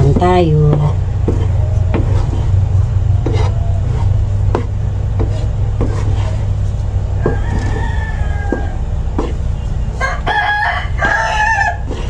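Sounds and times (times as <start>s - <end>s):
low rumble: 0.0s - 12.0s
wooden spatula scraping a pan: 0.1s - 10.0s, 11.0s - 12.0s
rooster crowing: 7.1s - 9.4s, 10.0s - 12.0s.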